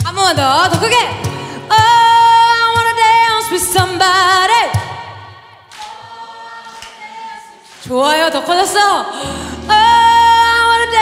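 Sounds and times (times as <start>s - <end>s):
acoustic band playing: 0.0s - 4.3s, 9.2s - 11.0s.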